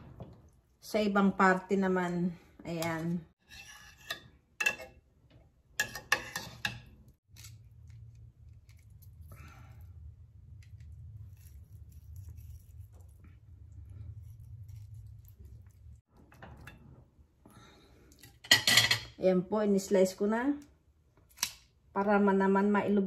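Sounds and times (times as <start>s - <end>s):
low steady rumble: 7.5s - 17.4s.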